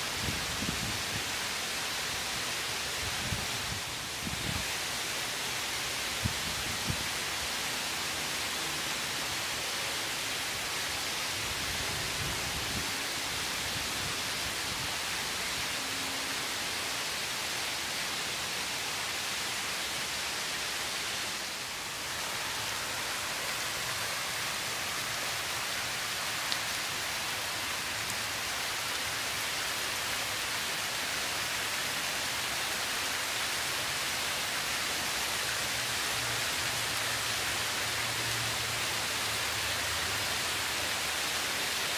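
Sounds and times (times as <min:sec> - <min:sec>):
fountain water splashing: 0:00.0 - 0:41.9.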